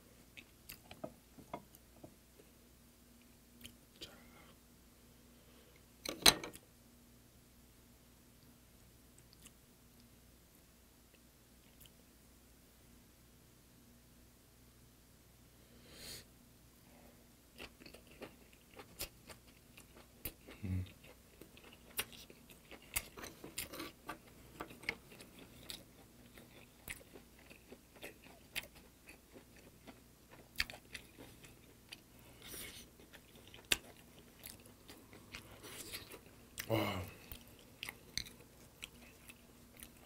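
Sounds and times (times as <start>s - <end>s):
wet chewing and lip smacks: 17.6s - 40.0s.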